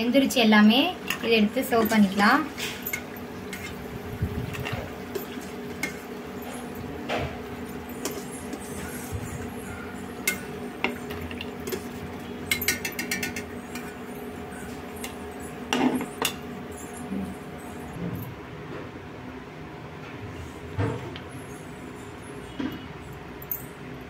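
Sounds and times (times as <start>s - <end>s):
metal spoon clinking on pan: 4.6s - 6.1s, 10.2s - 14.2s.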